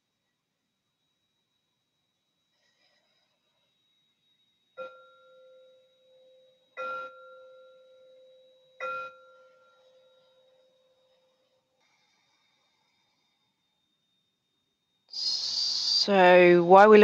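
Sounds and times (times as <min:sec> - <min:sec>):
meditation bell ringing: 0:04.8 - 0:11.6.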